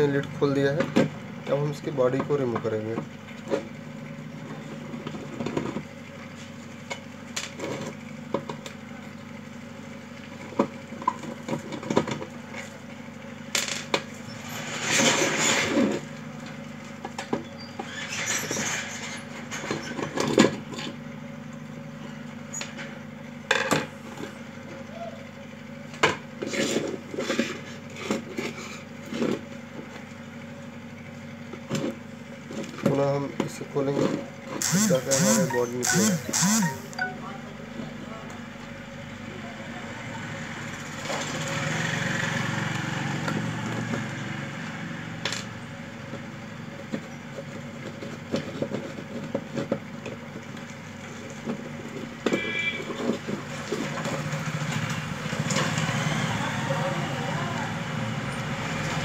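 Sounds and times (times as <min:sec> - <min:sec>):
screwdriver scraping plastic: 0:34.6 - 0:36.9.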